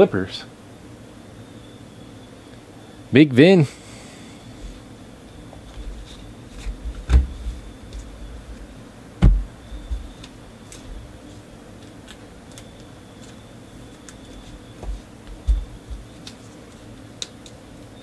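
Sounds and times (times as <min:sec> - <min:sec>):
light ticks of cards: 0:15.3 - 0:17.6.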